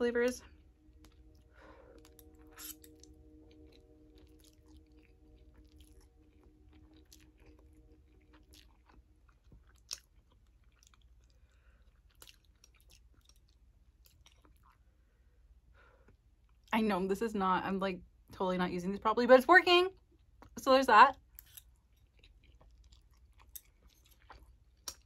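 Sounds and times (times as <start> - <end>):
chewing noodles: 0.4 - 15.0, 21.2 - 25.0.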